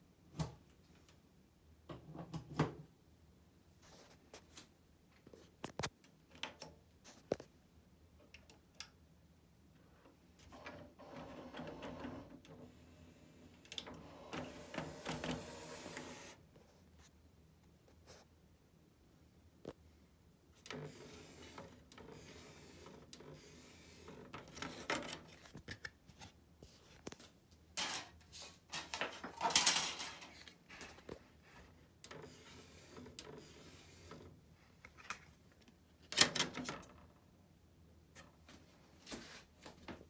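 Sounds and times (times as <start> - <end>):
disc carousel motor whirring: 10.5 - 16.4, 20.7 - 24.9, 32.1 - 34.3.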